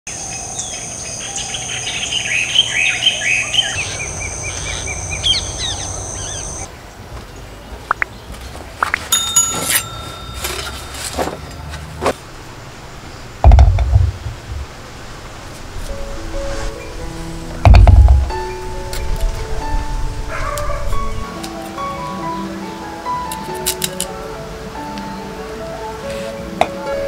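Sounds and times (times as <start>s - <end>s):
birds chirping: 0.1s - 15.0s
high-pitched insect drone: 3.2s - 6.7s
brief ringing tone: 9.2s - 11.4s.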